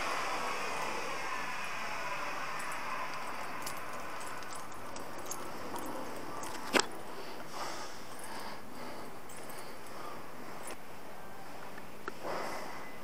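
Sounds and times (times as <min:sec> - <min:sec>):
steady hiss: 0:00.0 - 0:13.0
keys jingling: 0:02.6 - 0:10.8.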